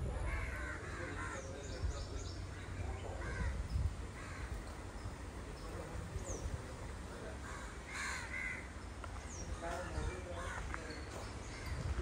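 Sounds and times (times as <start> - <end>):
crows cawing: 0.2 - 1.7, 2.5 - 4.8, 7.3 - 8.8, 9.5 - 10.9.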